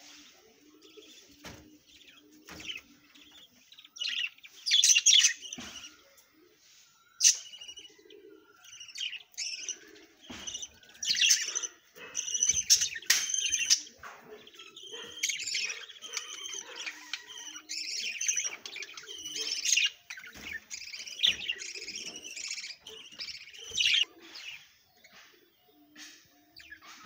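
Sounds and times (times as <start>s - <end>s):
budgerigars chirping: 7.2s - 25.3s.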